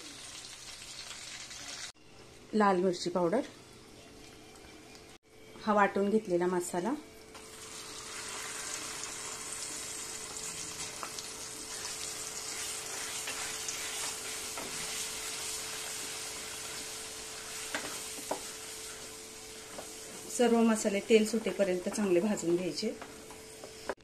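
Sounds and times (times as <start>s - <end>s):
paste sizzling in hot oil: 7.4s - 24.0s.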